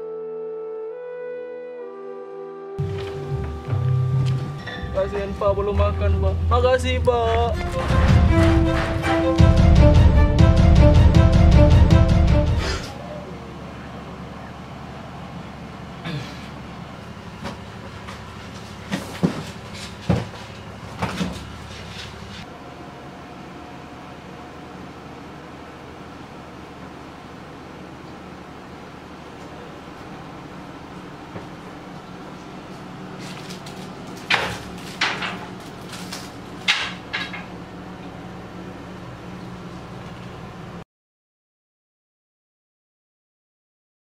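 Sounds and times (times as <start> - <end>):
low hum: 0.0 - 18.6
steady low hum: 2.8 - 40.8
paper rustling: 33.2 - 36.6.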